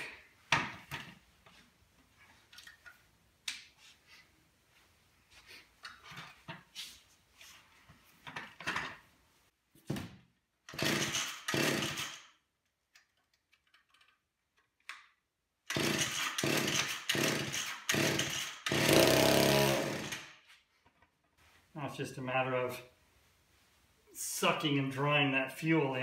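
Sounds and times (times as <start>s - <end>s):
chainsaw recoil starter pulls: 10.7s - 12.2s, 15.7s - 20.3s.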